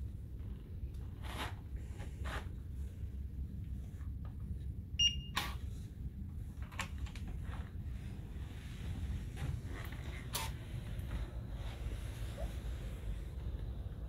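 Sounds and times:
low steady hum: 0.0s - 14.0s
key-card reader short high beep: 5.0s - 5.5s.

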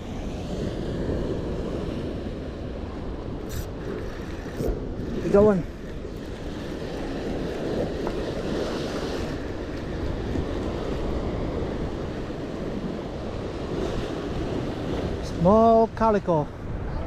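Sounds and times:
wind on microphone: 0.0s - 17.0s
surf breaking on rocks: 3.8s - 12.8s.

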